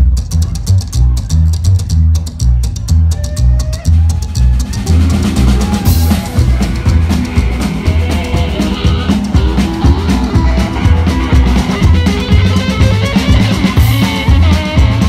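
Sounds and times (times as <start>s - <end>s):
drum kit beat: 0.0s - 15.0s
slapped upright bass: 0.0s - 15.0s
electric guitar: 3.1s - 15.0s.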